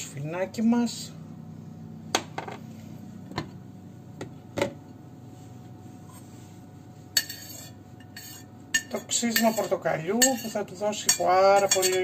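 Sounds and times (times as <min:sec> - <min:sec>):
plate scraping bowl rim: 0:07.2 - 0:12.0.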